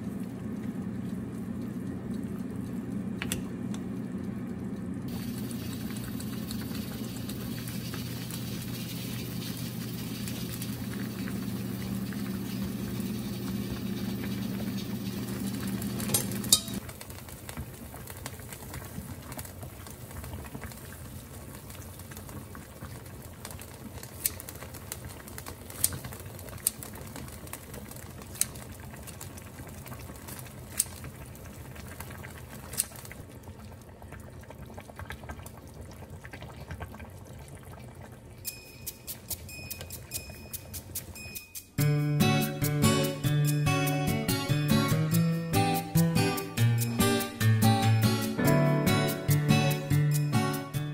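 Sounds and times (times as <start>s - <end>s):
stew bubbling in a pot: 0.0s - 41.2s
metal utensils clinking on pot: 16.1s - 16.8s.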